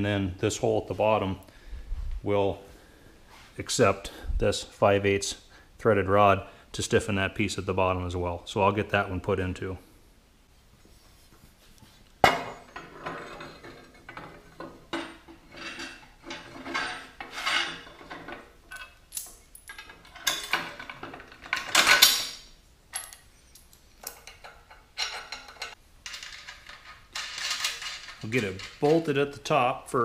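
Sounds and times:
steel parts clanking: 12.2 - 29.3
metallic rattle: 12.3 - 29.3.

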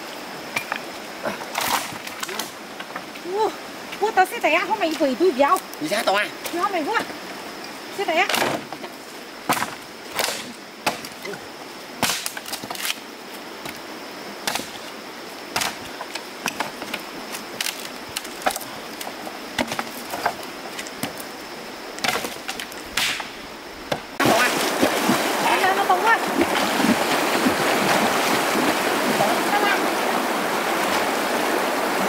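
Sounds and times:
stream water rushing: 0.0 - 32.0
hatchet chopping wood: 12.0 - 12.9, 14.4 - 14.8, 15.6 - 15.8, 22.0 - 23.3
water splashing: 24.0 - 32.0.

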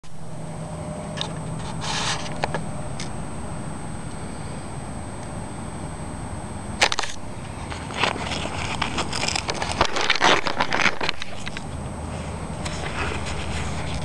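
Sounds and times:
velcro tearing: 6.8 - 11.7.

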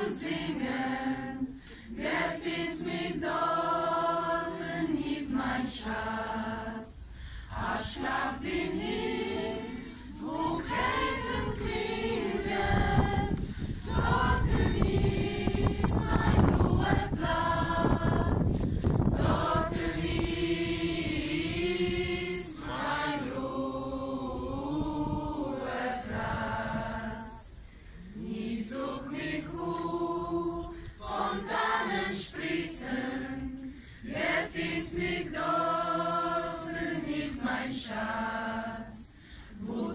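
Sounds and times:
group of voices singing: 0.0 - 39.9
low rumble on microphone: 10.1 - 22.6.

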